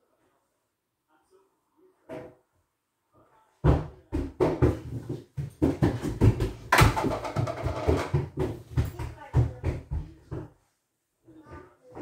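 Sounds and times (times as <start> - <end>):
child running on wooden floorboards: 3.6 - 10.6.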